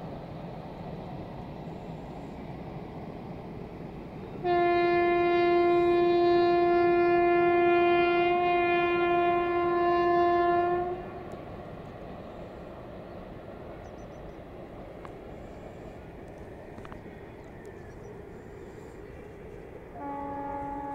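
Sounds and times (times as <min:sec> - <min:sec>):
train horn blast: 0:04.4 - 0:11.4, 0:19.9 - 0:20.9.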